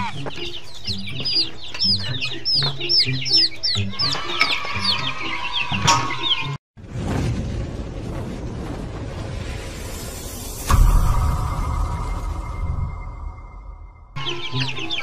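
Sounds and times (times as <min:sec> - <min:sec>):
chicks peeping: 0:00.0 - 0:06.6, 0:14.2 - 0:15.0.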